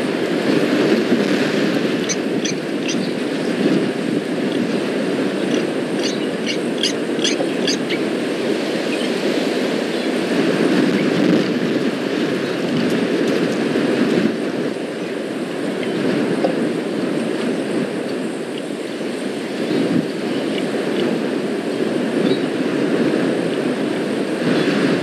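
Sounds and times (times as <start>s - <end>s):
low rumbling outdoor noise: 0.0s - 25.0s
bird chirping: 2.0s - 3.2s, 5.4s - 8.0s.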